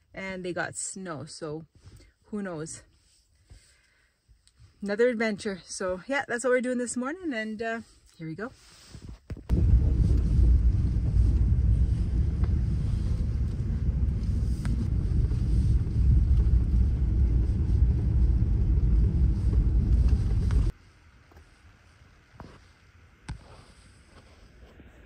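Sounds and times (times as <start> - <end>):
vehicle driving over rough snowy road: 9.5 - 20.7.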